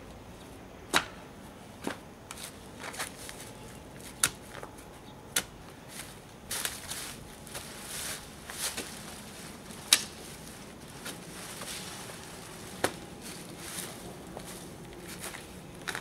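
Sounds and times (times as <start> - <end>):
dry leaves rustling: 2.4 - 4.6, 5.8 - 16.0.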